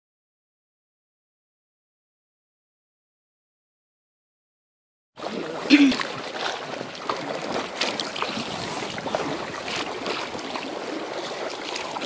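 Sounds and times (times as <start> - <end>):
paddle splashes and drips: 5.2 - 12.0
steady wash of water: 5.2 - 12.0.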